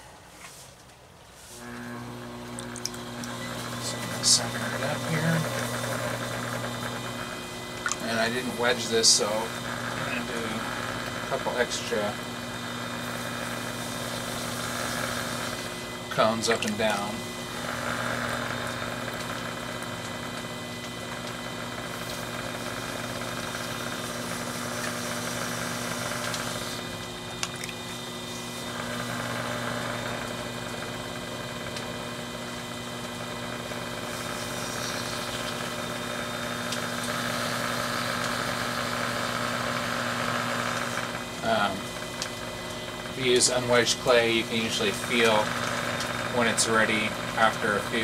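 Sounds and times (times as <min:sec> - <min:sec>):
potter's wheel humming: 0:01.4 - 0:48.0.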